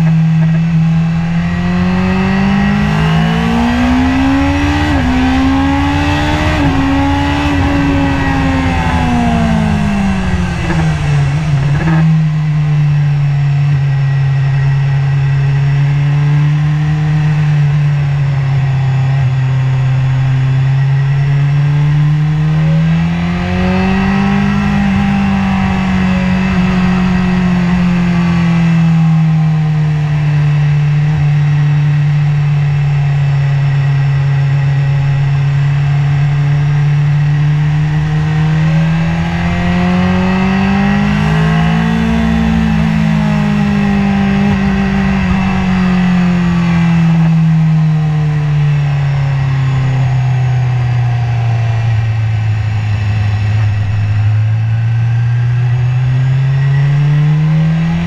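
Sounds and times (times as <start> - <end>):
motorcycle engine running: 0.0 - 58.0
wind rush: 2.0 - 12.9, 37.0 - 51.2.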